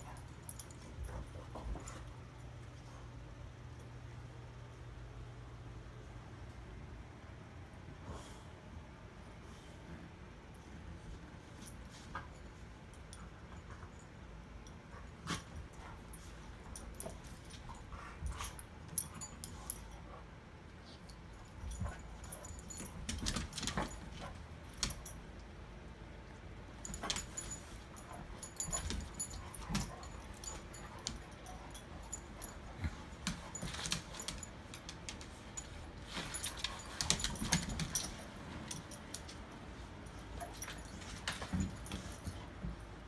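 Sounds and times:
dogs scuffling: 26.8 - 42.9.

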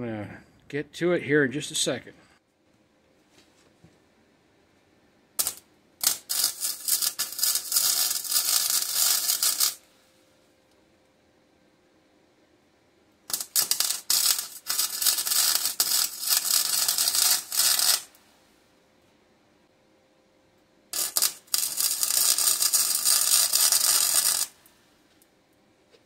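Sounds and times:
electric arc welder crackling: 5.4 - 9.8, 13.3 - 18.2, 20.9 - 25.2.

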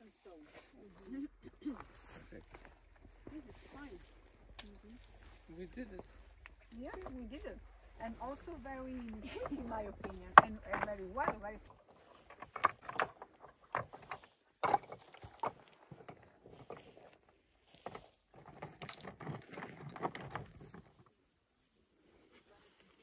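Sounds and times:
stones clacking together: 8.5 - 17.0.

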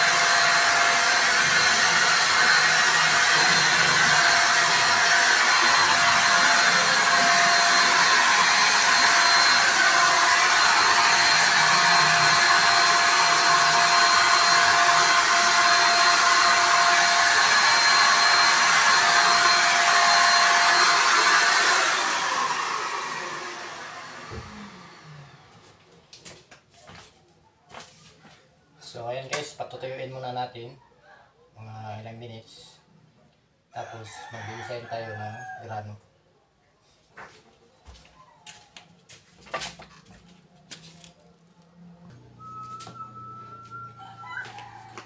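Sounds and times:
electric spray gun whining: 0.0 - 25.6.

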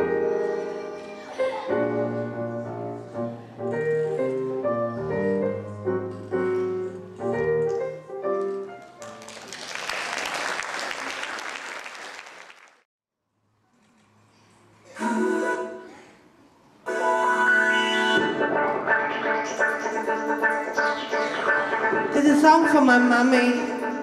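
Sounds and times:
piano melody: 0.0 - 9.5, 16.9 - 24.0
audience applauding: 9.0 - 12.9.

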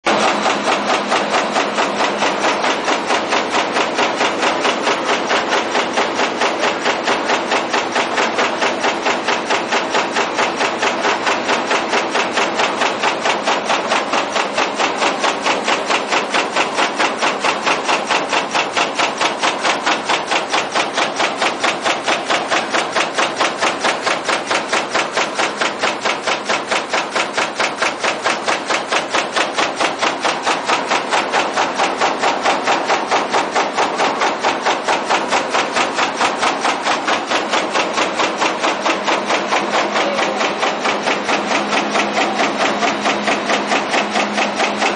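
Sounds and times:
press stamping metal fins: 0.1 - 44.9.

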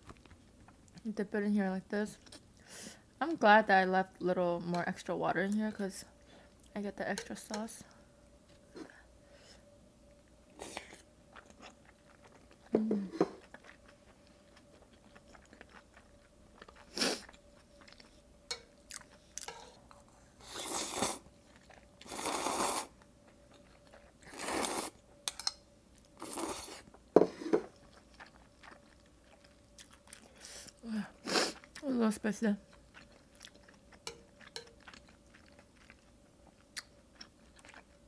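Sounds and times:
chewing with wet mouth clicks: 13.4 - 19.6, 27.8 - 30.8, 32.7 - 38.0
slurping noodles: 20.4 - 21.2, 22.0 - 22.9, 24.3 - 25.0.

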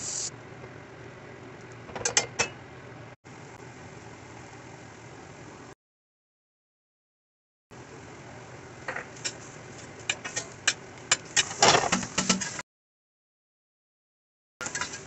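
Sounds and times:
steady hiss: 0.0 - 0.3.

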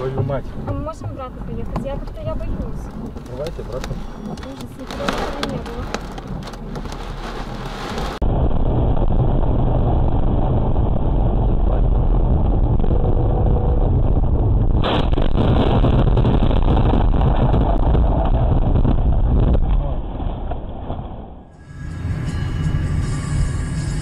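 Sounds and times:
car road and engine rumble: 0.0 - 15.5
heavy rain and wind: 0.0 - 21.2
clatter on windshield: 0.1 - 8.2
sudden impact: 8.0 - 21.6.

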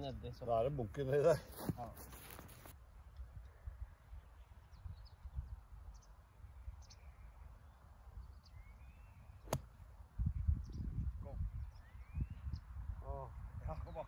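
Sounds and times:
faint bird chirps: 3.4 - 14.0
golf club hitting sand: 9.4 - 9.8.

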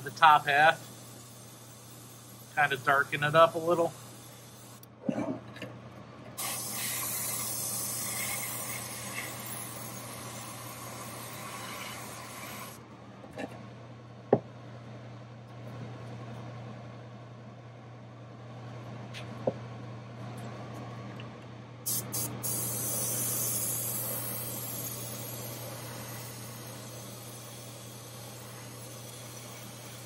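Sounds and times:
airbrush spraying hiss: 0.0 - 4.8, 6.4 - 12.8, 21.9 - 30.0
exhaust fan hum: 0.0 - 30.0.

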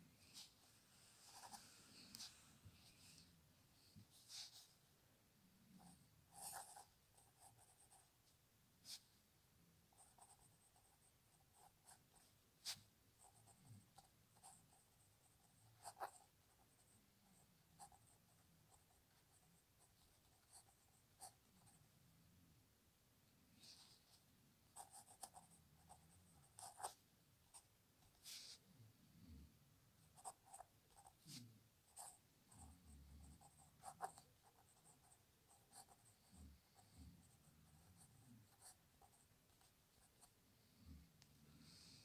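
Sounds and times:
pen scratching on paper: 1.3 - 3.2, 4.0 - 4.7, 5.8 - 8.1, 9.9 - 21.8, 24.8 - 28.6, 30.0 - 40.4.

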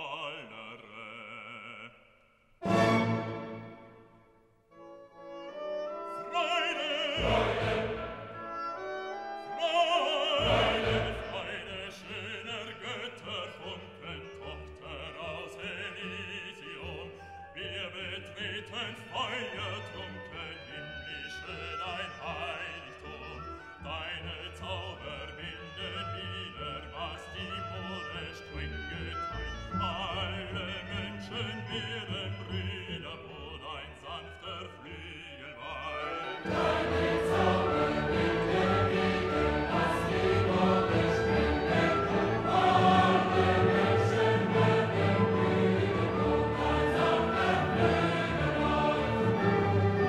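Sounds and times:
orchestral accompaniment: 2.6 - 24.4, 35.6 - 50.0.

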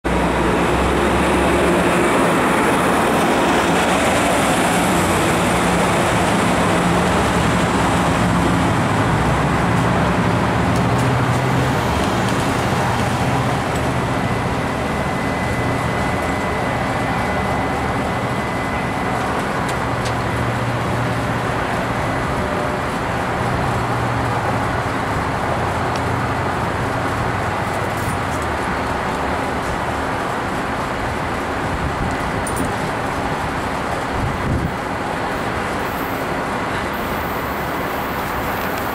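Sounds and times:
train rumbling over rails: 0.0 - 38.9.

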